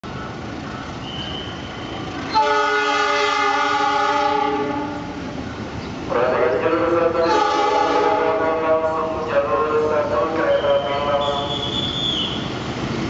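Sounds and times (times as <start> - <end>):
train horn blast: 2.3 - 5.1, 7.2 - 8.6.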